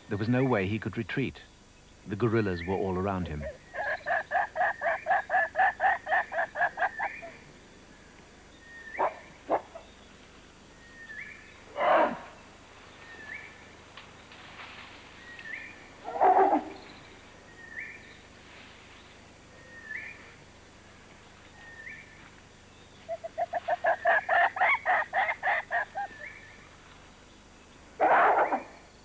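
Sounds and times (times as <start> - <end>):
gorillas calling: 2.2 - 7.4, 11.7 - 12.4, 23.0 - 26.4, 28.0 - 28.8.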